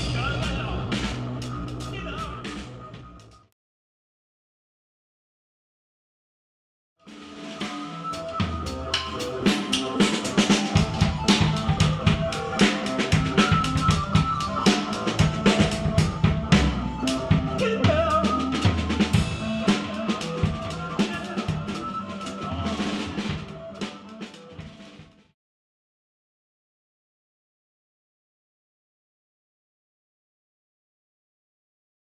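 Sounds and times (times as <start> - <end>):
fast drum-kit hits: 0.0 - 2.5, 7.2 - 17.7
sustained electronic keyboard tones: 7.4 - 24.8.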